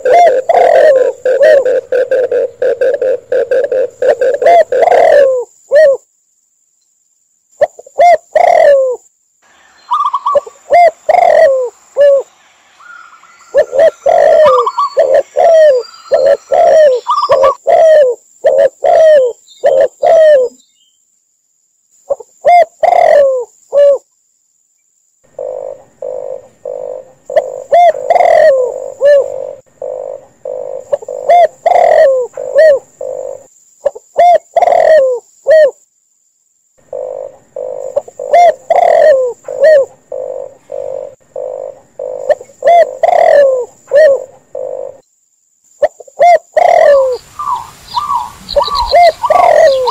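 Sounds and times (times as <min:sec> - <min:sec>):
doves cooing: 0:00.0 - 0:06.0, 0:07.7 - 0:09.0, 0:09.9 - 0:20.6, 0:22.1 - 0:24.0, 0:25.3 - 0:35.8, 0:36.9 - 0:45.0, 0:45.9 - 0:49.9
higher cooing notes: 0:00.0 - 0:06.0, 0:09.9 - 0:20.6, 0:25.4 - 0:33.4, 0:36.9 - 0:45.0, 0:46.2 - 0:49.9.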